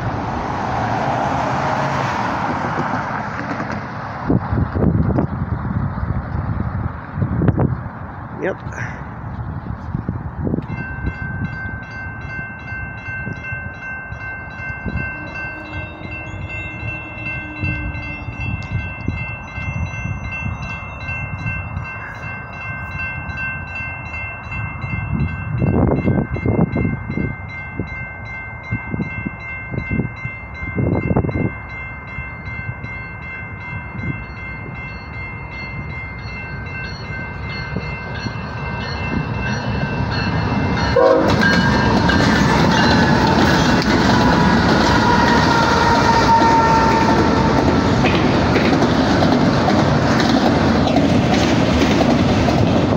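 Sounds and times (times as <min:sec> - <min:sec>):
train rumble: 0:00.0 - 0:52.9
railroad crossing bell ringing: 0:08.4 - 0:52.9
train horn: 0:14.9 - 0:18.4, 0:40.9 - 0:47.9.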